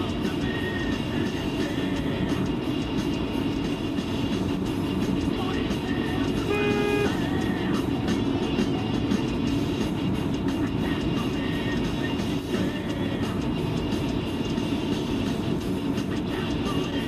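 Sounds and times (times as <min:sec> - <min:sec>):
car radio playing faintly: 0:00.0 - 0:17.0
car road and engine noise: 0:00.0 - 0:17.0
short held tone: 0:06.5 - 0:07.2.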